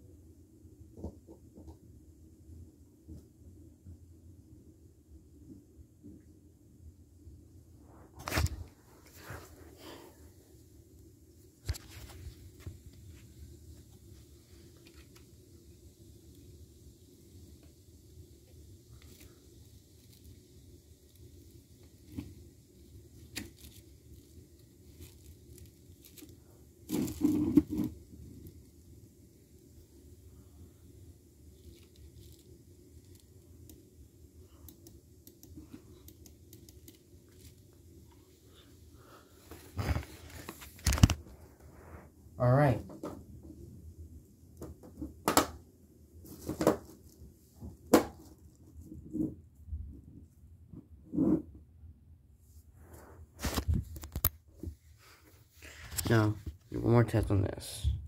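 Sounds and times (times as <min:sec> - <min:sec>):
hands rubbing and rustling: 0:39.4 - 0:42.1.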